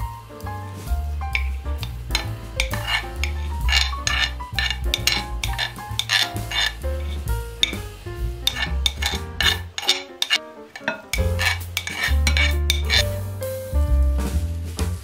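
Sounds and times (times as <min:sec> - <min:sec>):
background music with bass: 0:00.0 - 0:09.8, 0:11.1 - 0:15.0
utensils scraping glass bowl: 0:01.4 - 0:07.8, 0:08.5 - 0:13.1.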